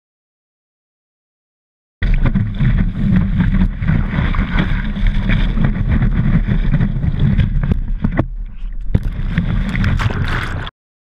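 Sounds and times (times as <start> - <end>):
water spraying off wakeboard: 2.0 - 8.2
wind buffeting microphone: 2.0 - 10.7.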